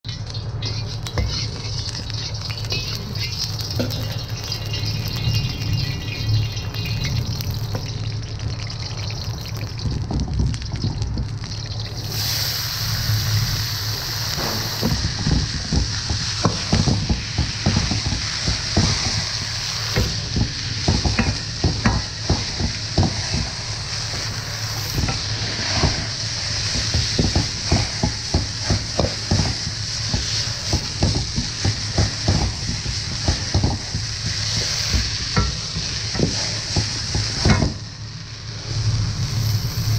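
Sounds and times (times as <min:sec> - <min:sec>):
oil sizzling in a wok: 0:00.0 - 0:39.9
metal ladle scraping a wok: 0:00.6 - 0:06.2.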